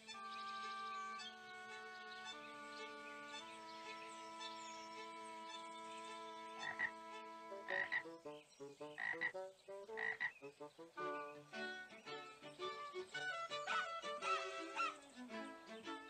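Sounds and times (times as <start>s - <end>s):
frog croaking: 6.6s - 6.9s, 7.7s - 8.0s, 9.0s - 9.3s, 10.0s - 10.3s.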